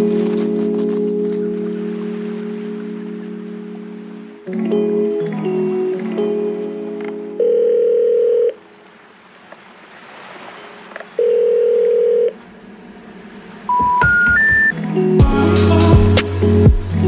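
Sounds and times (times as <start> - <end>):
telephone ringback beeps: 7.0 - 8.6, 11.0 - 12.4.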